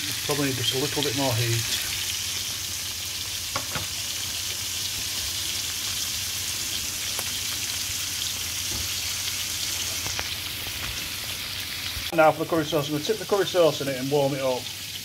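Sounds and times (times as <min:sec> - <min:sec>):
food frying in oil: 0:00.0 - 0:15.0
oil crackling: 0:07.0 - 0:12.1.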